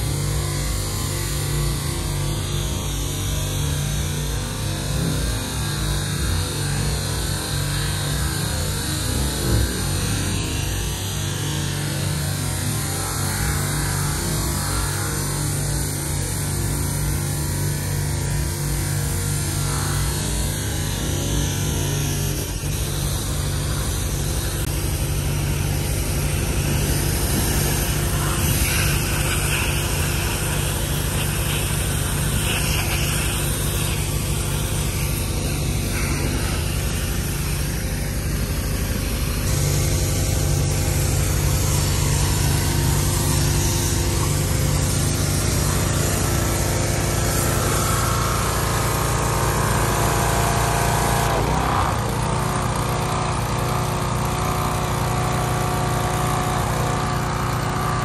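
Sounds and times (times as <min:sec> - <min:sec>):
car engine idling: 0:18.2 - 0:50.2.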